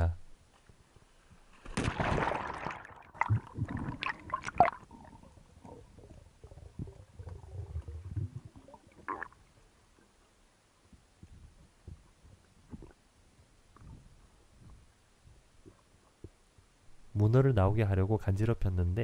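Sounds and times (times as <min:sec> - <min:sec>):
underwater gurgling and bubbling: 0:03.1 - 0:09.5.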